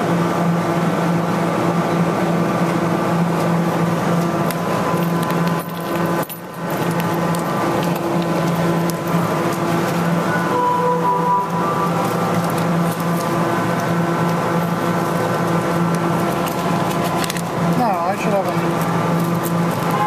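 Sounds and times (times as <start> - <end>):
claw machine hum and motor whir: 0.0 - 20.0
pulsing tone: 8.6 - 15.0, 19.8 - 20.0.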